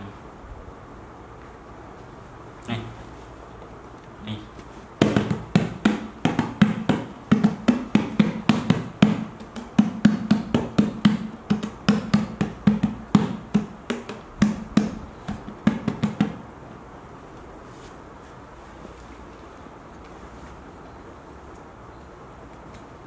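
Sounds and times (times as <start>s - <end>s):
hands drumming on metal tin: 5.0s - 16.4s.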